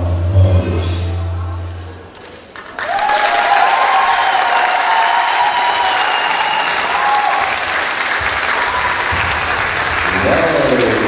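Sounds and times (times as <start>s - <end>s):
audience clapping and cheering: 2.2s - 11.0s.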